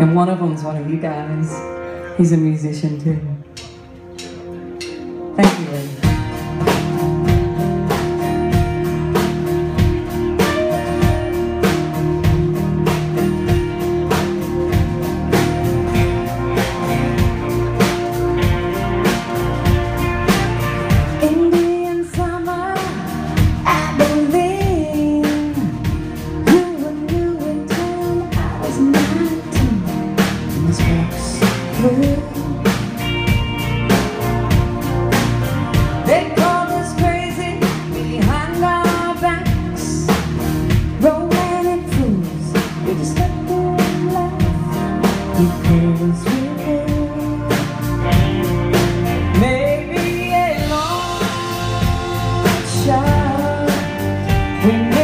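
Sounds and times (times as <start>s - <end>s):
live country-rock band: 3.0s - 55.0s
woman singing lead vocal: 21.1s - 33.3s, 36.0s - 48.3s, 49.2s - 55.0s.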